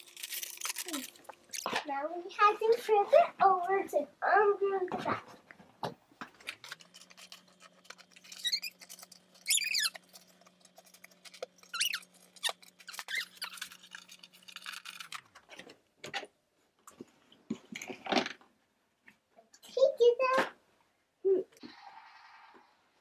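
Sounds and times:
cardboard rustling: 6.3s - 15.4s
short high squeaks: 6.7s - 15.1s.

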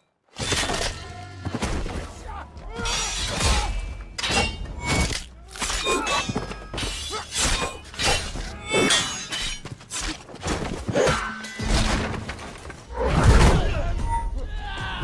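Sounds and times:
steel swords clashing: 0.3s - 1.2s, 2.7s - 10.3s.

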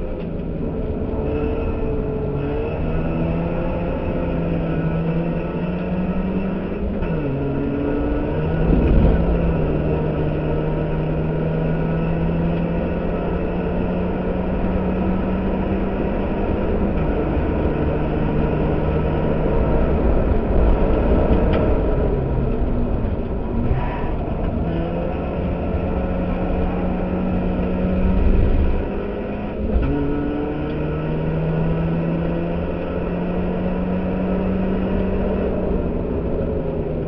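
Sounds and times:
race car engine revving: 0.0s - 37.0s
low engine rumble: 19.4s - 26.6s.

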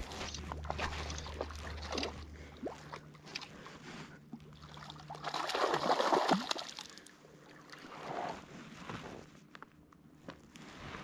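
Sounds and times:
water splashing: 0.0s - 3.5s, 4.6s - 7.0s.

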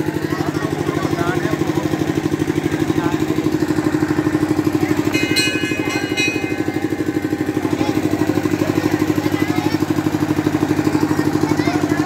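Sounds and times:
small engine idling: 0.0s - 12.0s
high steady tones: 4.8s - 8.5s.

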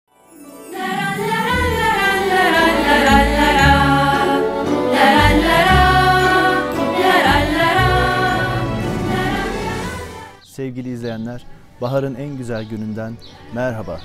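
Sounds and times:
choir-like singing voices: 0.6s - 10.4s.

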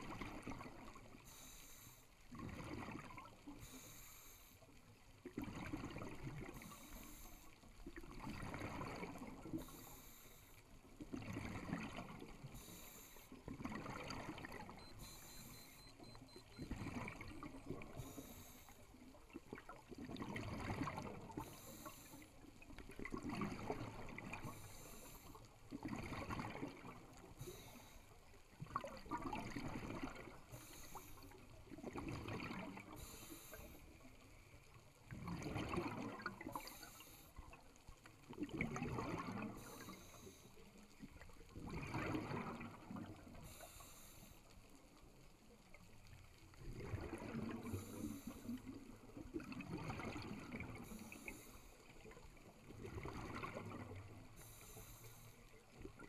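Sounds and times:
regulator hissing inhale: 1.2s - 2.2s, 3.6s - 4.7s, 6.6s - 7.6s, 9.6s - 10.6s, 12.4s - 13.4s, 18.0s - 18.9s, 21.4s - 22.4s, 24.4s - 25.4s, 27.4s - 28.1s, 30.5s - 31.4s, 33.0s - 34.0s, 36.6s - 37.4s, 39.6s - 40.7s, 43.4s - 44.5s, 47.7s - 48.8s, 50.8s - 51.8s, 54.4s - 55.4s
exhaled bubbles rushing: 2.3s - 3.4s, 5.3s - 6.6s, 7.9s - 9.6s, 11.0s - 12.6s, 13.5s - 14.9s, 16.0s - 18.1s, 19.5s - 21.6s, 22.9s - 24.5s, 25.8s - 27.3s, 28.6s - 30.4s, 31.7s - 33.0s, 35.1s - 36.6s, 38.3s - 39.9s, 41.6s - 43.3s, 46.6s - 48.1s, 49.0s - 51.1s, 52.6s - 54.2s.

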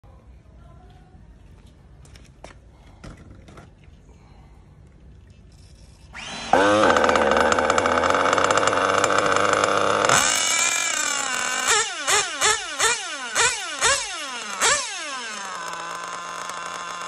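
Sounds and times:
rc car engine revving: 6.2s - 17.0s.

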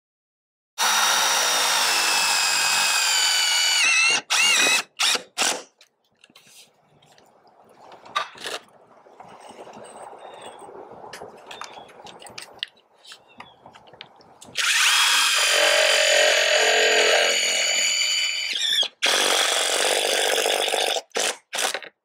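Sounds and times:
cordless drill driving screw: 0.8s - 5.7s, 14.5s - 21.9s
faint clicks and knocks: 5.8s - 14.6s.

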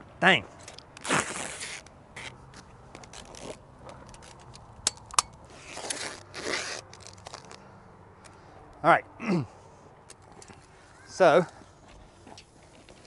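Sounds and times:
tape measure blade scraping: 1.0s - 7.6s.

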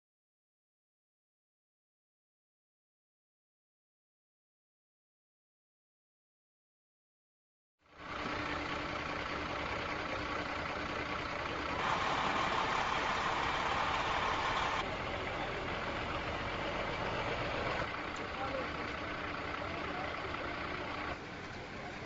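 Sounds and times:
diesel engine idling: 7.8s - 22.0s.

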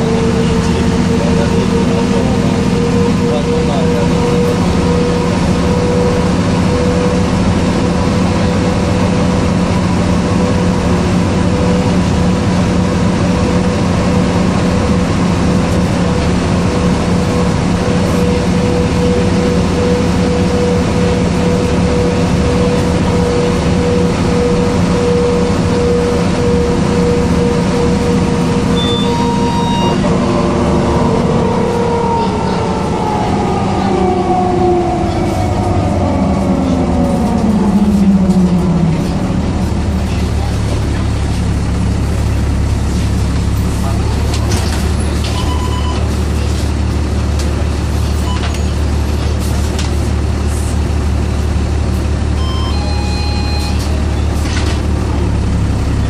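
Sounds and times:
bus engine drone: 0.0s - 56.0s
short high beep: 28.8s - 30.0s, 45.4s - 46.0s, 52.4s - 54.0s.

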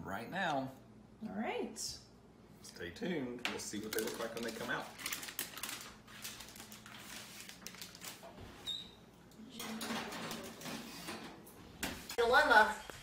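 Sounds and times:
parchment paper crinkling: 3.7s - 8.6s.

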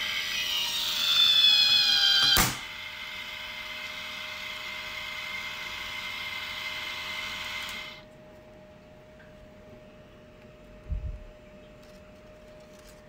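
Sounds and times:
gear motor whining: 0.0s - 8.0s.

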